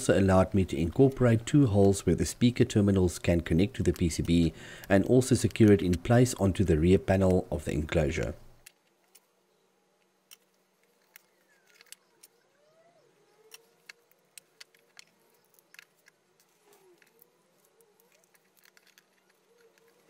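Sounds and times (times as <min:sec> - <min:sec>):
small metal parts clicking: 0:01.8 - 0:06.6, 0:10.0 - 0:12.5, 0:13.3 - 0:20.0.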